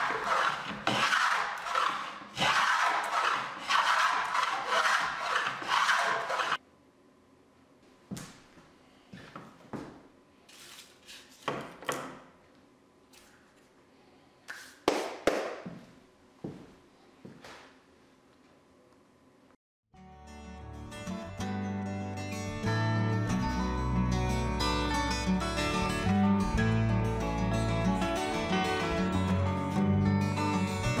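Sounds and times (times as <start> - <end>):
wooden plane cutting wood: 0.0 - 6.6.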